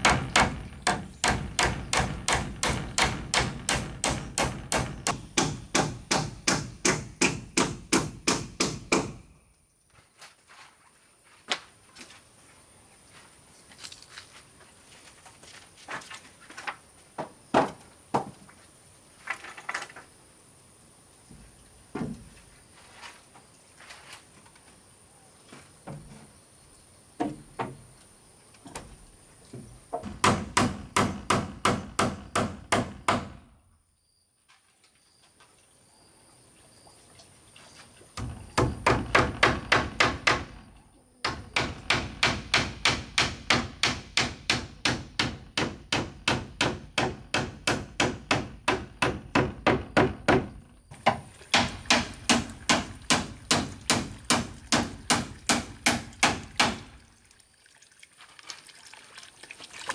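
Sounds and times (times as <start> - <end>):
hammer driving nails into wood: 0.0 - 9.2, 30.0 - 33.4, 38.2 - 40.6, 41.2 - 56.9.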